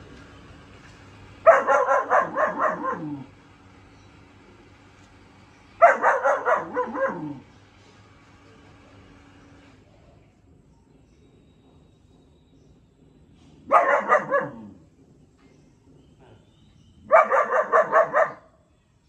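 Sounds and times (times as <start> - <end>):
puppy barking: 1.4 - 3.3, 5.8 - 7.5, 13.6 - 14.8, 17.0 - 18.6.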